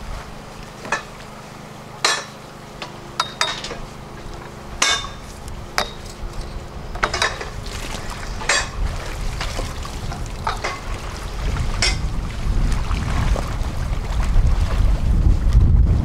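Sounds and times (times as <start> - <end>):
low machine hum: 0.0 - 16.0
sharp metallic clanks: 2.0 - 7.6, 8.4 - 8.8, 10.4 - 10.9, 11.8 - 12.0.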